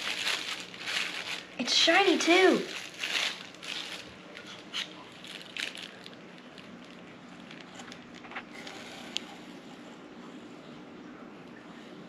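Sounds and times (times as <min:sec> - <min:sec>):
plastic bag crinkling: 0:00.0 - 0:09.2.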